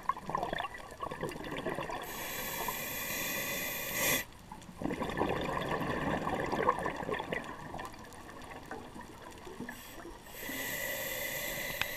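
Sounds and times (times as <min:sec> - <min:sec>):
exhaled breath bubbling underwater: 0:00.3 - 0:07.9
breath hissing through regulator: 0:02.0 - 0:04.3, 0:09.7 - 0:11.9.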